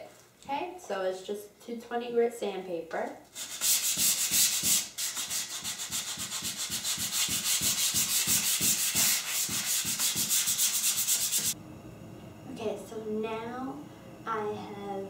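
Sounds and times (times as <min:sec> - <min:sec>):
sandpaper rubbing on wood: 0:03.4 - 0:11.6.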